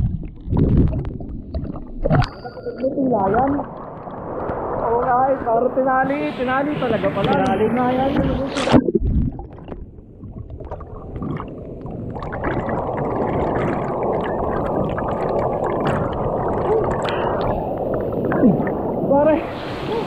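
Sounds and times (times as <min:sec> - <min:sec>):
rushing water: 0:00.0 - 0:20.0.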